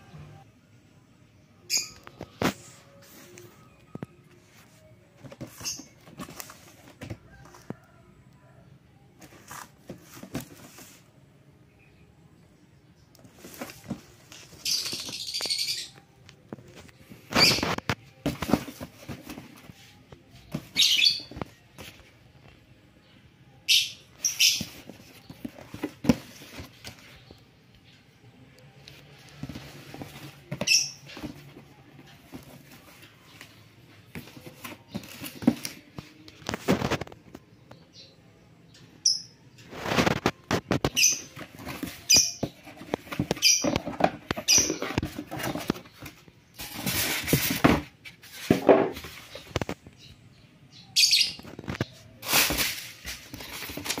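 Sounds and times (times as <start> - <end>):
styrofoam squeaking: 17.2 - 19.7, 24.1 - 27.1, 39.7 - 49.6, 51.5 - 54.0
plastic bag rustling: 52.2 - 54.0.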